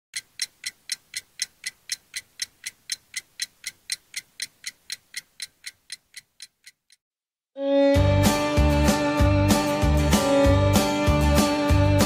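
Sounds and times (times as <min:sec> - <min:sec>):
clock ticking: 0:00.1 - 0:07.0.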